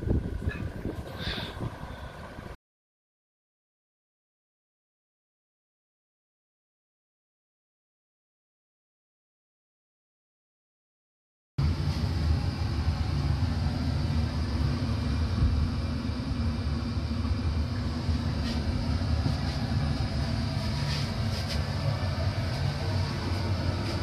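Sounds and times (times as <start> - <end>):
steam machinery rumbling: 11.6 - 24.0.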